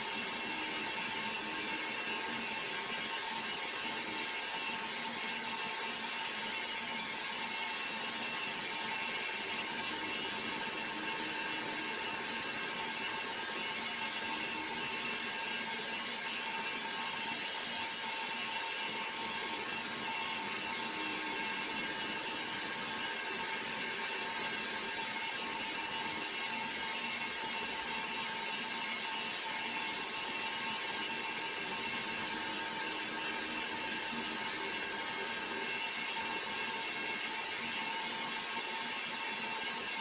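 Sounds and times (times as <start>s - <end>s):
machine tool motor whir: 0.0s - 40.0s.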